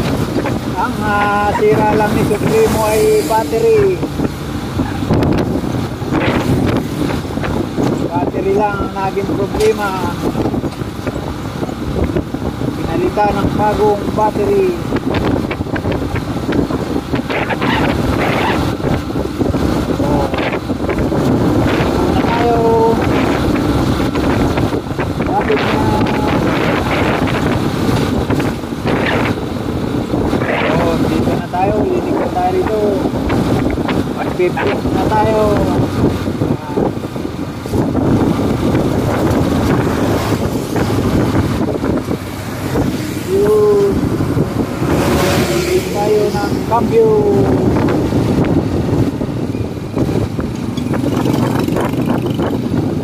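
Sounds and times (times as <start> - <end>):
road noise: 0.0 - 53.0
wind rushing over microphone: 0.0 - 53.0
motorcycle engine: 14.8 - 53.0.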